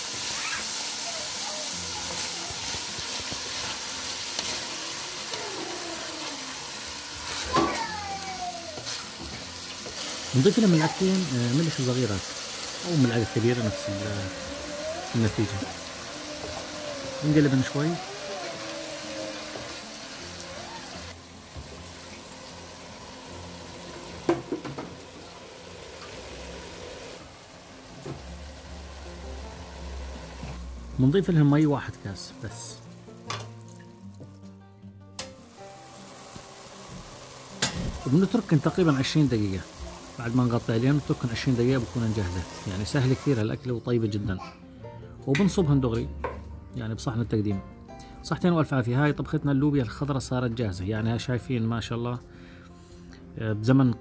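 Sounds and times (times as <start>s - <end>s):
beans sizzling in hot oil: 0.0s - 34.4s, 35.2s - 43.6s.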